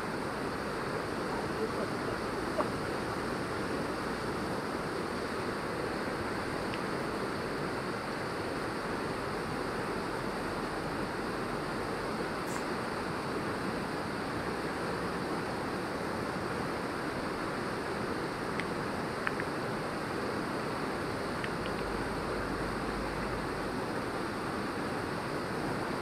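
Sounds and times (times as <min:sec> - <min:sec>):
faint clicks: 0:21.4 - 0:21.9.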